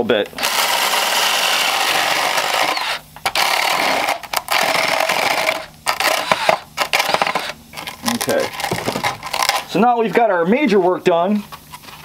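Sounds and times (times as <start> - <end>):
cordless drill boring: 0.4 - 7.6.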